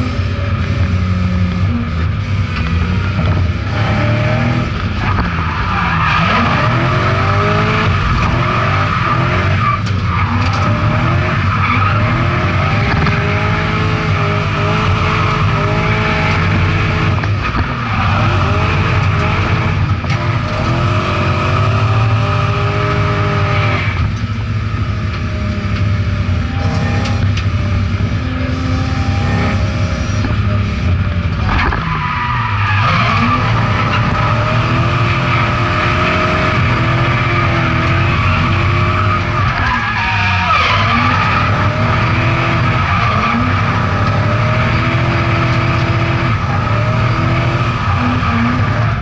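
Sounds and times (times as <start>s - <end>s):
car engine running hard: 0.0s - 49.0s
tyres squealing: 31.8s - 44.0s.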